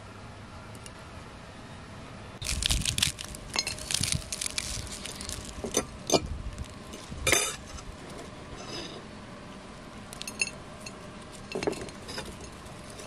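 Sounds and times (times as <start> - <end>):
flaky pastry crackling when torn: 2.4 - 5.7.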